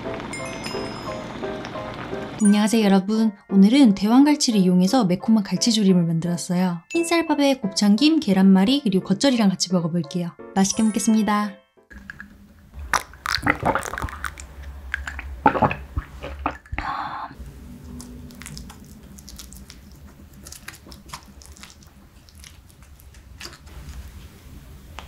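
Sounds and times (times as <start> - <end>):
chopsticks squishing soft fish: 17.5 - 24.5.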